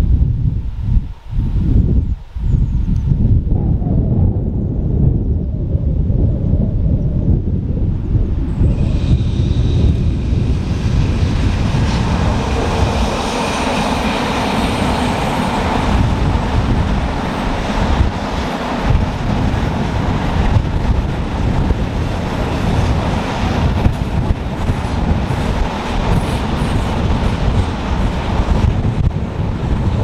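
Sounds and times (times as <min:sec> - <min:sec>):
electric locomotive whine: 0:07.4 - 0:30.0.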